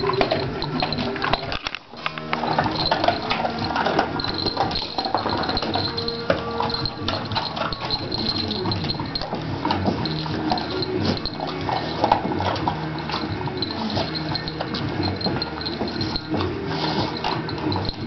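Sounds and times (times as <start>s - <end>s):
dog claws clicking on tiled floor: 0.0s - 18.0s.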